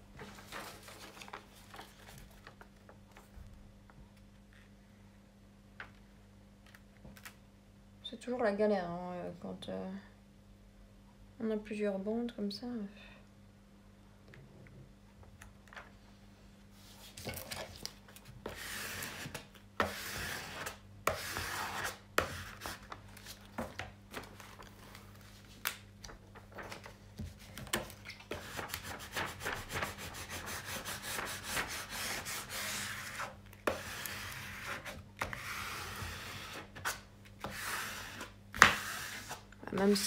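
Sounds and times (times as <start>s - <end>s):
plastic film rustling and scraping: 0.2s - 2.9s.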